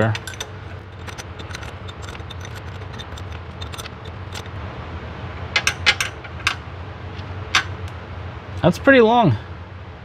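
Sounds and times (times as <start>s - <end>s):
wrench clinking on metal nut: 0.0s - 4.5s, 5.6s - 6.6s.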